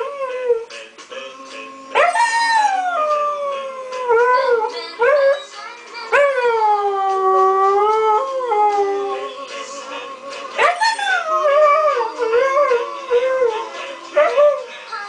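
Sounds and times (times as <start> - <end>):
tv theme music: 0.0 - 15.0
puppy howling: 1.9 - 5.5, 6.1 - 9.4, 10.6 - 14.8.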